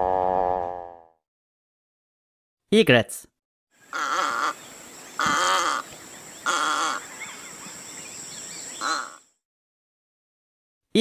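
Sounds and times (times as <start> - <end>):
birds chirping: 3.8 - 9.4.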